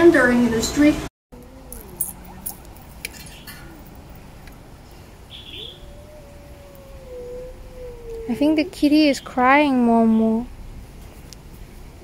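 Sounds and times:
kitten crying: 0:01.4 - 0:04.1, 0:05.3 - 0:09.0
high chirp: 0:01.4 - 0:04.3.

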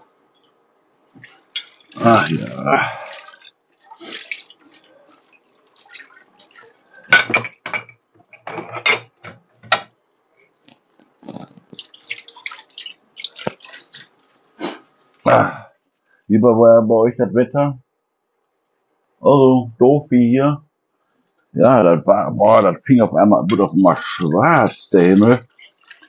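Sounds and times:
water splashing and dripping: 0:01.1 - 0:07.4, 0:11.2 - 0:14.5, 0:25.2 - 0:26.0
crockery and cutlery clinking: 0:05.9 - 0:09.9.

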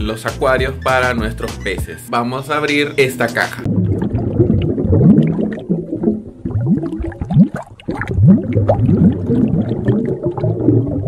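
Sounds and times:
underwater bubbling: 0:03.6 - 0:11.0.

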